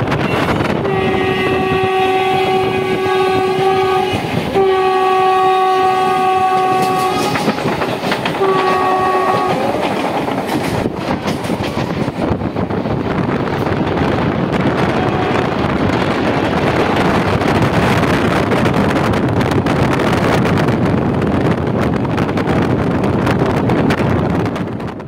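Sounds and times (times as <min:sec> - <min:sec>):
train rumble: 0:00.0 - 0:25.0
train wheel clatter: 0:00.0 - 0:25.0
train horn blasts: 0:00.2 - 0:07.8, 0:08.4 - 0:09.9, 0:14.8 - 0:15.6.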